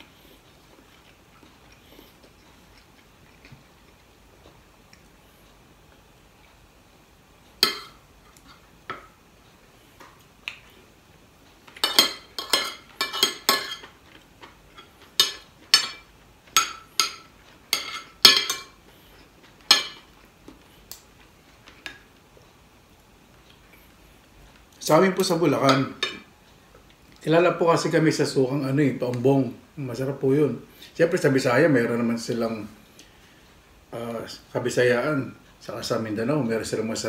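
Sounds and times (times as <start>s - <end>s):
cutlery clinking on plate: 11.8s - 14.0s, 14.8s - 18.8s, 19.7s - 20.1s.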